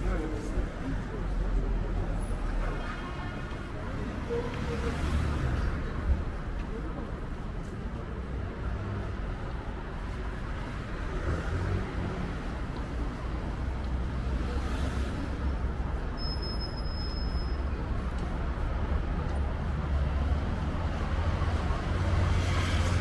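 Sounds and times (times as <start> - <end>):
passing cars and buses: 0.0 - 23.0
short high-pitched squeal: 16.2 - 17.6.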